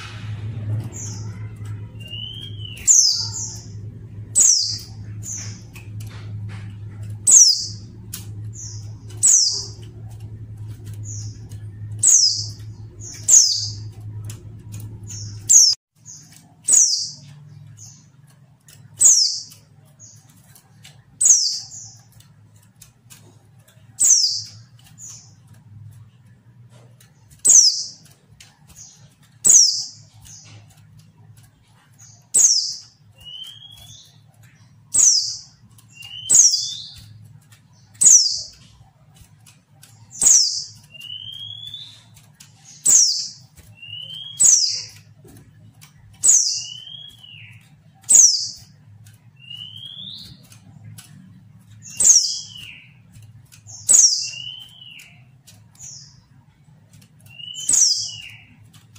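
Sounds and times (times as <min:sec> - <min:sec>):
bird calling high sliding notes: 0:00.0 - 0:15.8
lower rising bird notes: 0:00.0 - 0:17.8.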